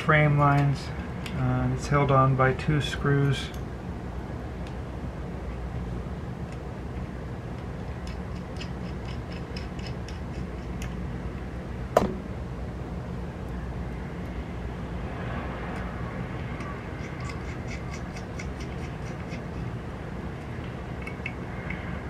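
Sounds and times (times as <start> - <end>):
low steady hum: 0.0 - 22.0
screwdriver metallic ticks: 8.0 - 11.0, 16.6 - 19.7, 20.4 - 21.9.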